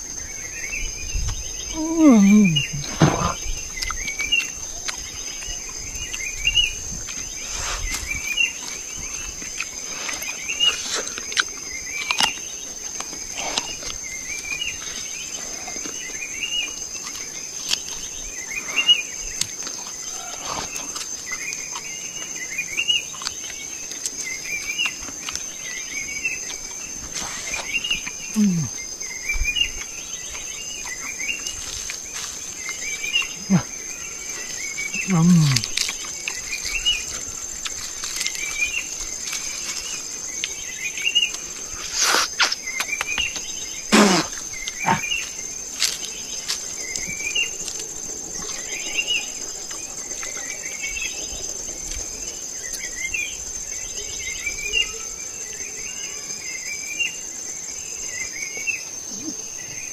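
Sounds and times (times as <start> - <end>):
high-pitched insect drone: 0.0 - 3.5
short insect chirps: 0.0 - 59.9
rustles: 1.2 - 55.2.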